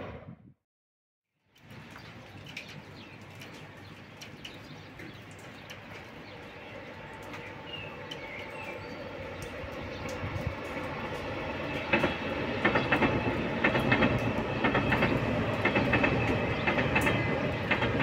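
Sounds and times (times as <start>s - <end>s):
birds chirping: 1.6s - 18.0s
high-speed train rumble: 4.9s - 18.0s.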